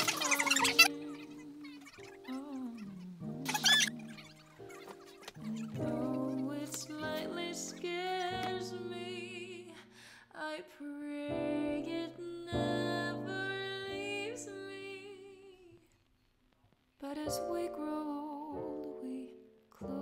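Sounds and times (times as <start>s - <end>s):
person singing wavering notes: 5.4s - 9.6s.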